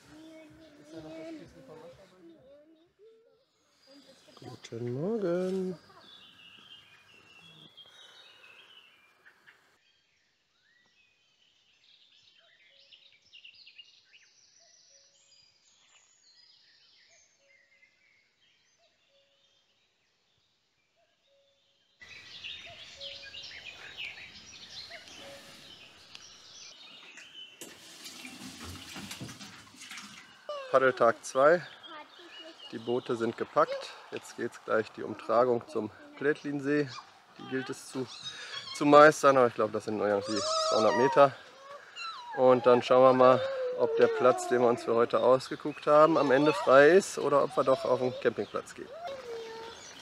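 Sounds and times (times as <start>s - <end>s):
birds chirping: 0.0s - 9.8s, 22.0s - 50.0s
dishes being washed: 27.6s - 30.5s.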